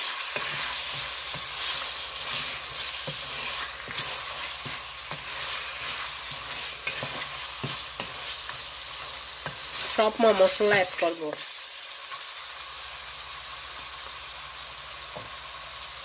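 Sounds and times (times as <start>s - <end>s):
meat sizzling in hot oil: 0.0s - 16.0s
spatula scraping metal pot: 0.2s - 11.1s.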